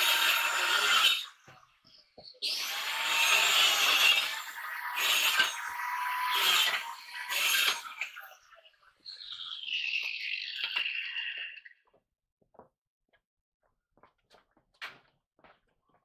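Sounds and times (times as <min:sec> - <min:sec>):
power saw cutting wood: 0:00.0 - 0:01.7, 0:02.4 - 0:08.5.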